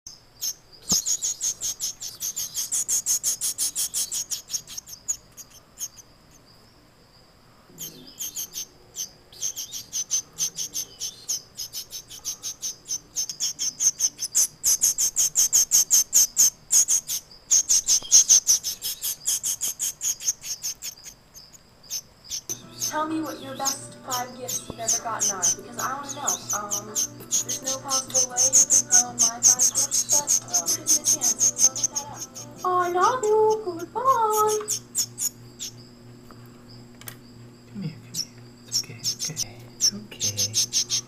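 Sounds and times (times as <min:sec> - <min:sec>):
chick peeping: 0:07.7 - 0:35.9, 0:37.8 - 0:41.0.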